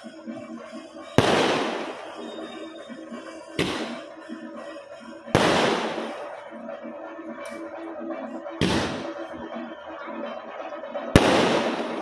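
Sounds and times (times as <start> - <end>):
firecracker bangs with echo: 1.1 - 2.3, 3.6 - 4.1, 5.3 - 6.3, 8.6 - 9.2, 11.2 - 12.0.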